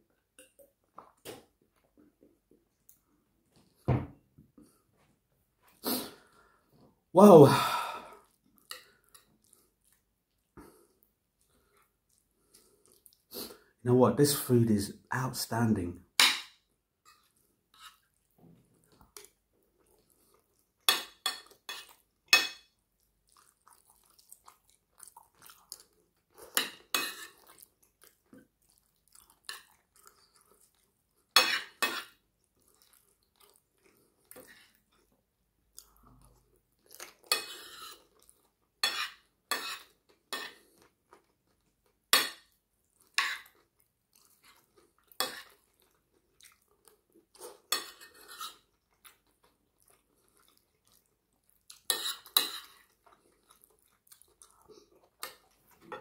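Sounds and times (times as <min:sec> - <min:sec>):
soft chewing: 0:00.0 - 0:03.8, 0:04.5 - 0:07.1, 0:08.1 - 0:13.8, 0:16.9 - 0:56.0
cutlery clinking on a plate: 0:20.9 - 0:22.7.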